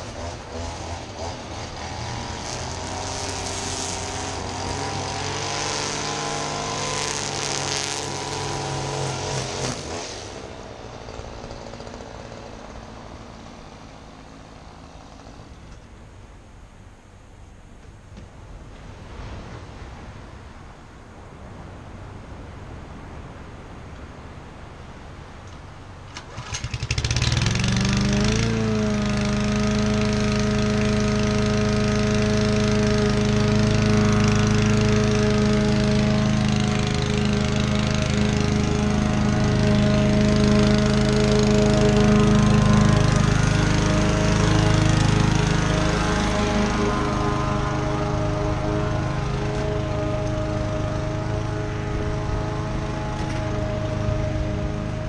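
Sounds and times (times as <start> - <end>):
lawn mower engine running: 0.0 - 15.9, 25.5 - 55.0
wind and surf: 18.3 - 26.2.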